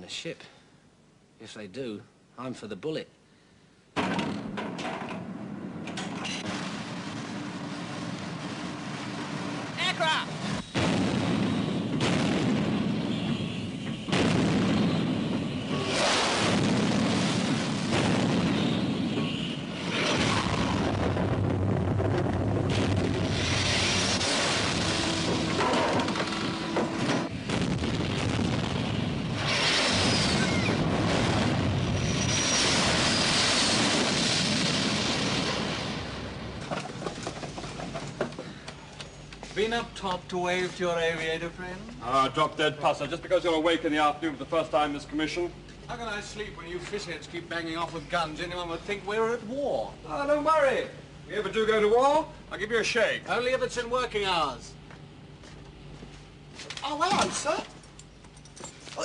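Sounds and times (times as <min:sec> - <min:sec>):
loud jet noise: 0:06.5 - 0:27.5, 0:29.1 - 0:36.3.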